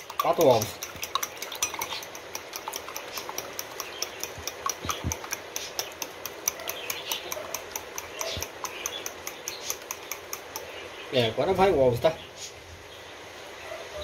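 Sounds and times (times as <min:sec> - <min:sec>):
fork clinking against glass bowl: 0:00.0 - 0:10.8.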